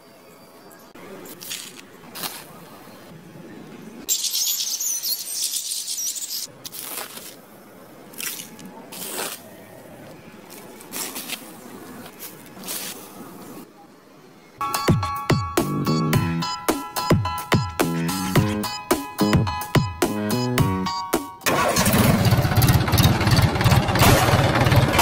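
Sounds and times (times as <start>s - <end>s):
toy shovel scraping straw: 8.9s - 9.5s, 10.8s - 13.2s.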